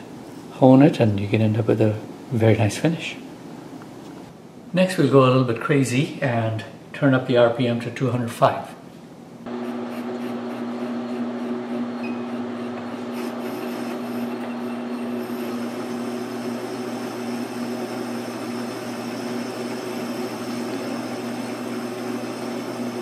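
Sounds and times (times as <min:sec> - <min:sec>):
lathe drive humming: 0:09.5 - 0:23.0.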